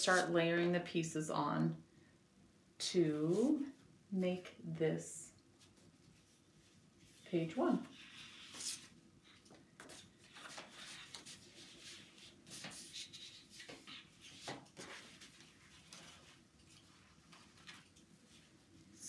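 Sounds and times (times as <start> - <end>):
paper rustling on tabletop: 0.0 - 0.4, 5.6 - 18.6.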